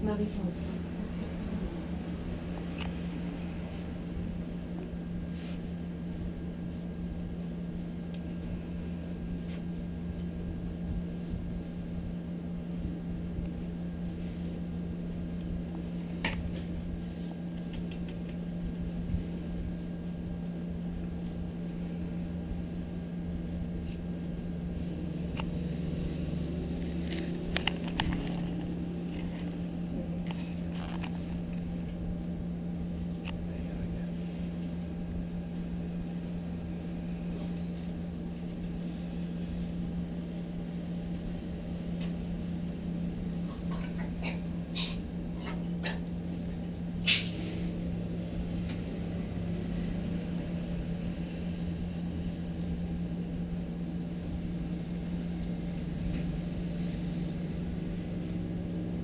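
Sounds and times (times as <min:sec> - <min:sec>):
air conditioner humming: 0:00.0 - 0:59.0
faint clicks: 0:17.5 - 0:18.4.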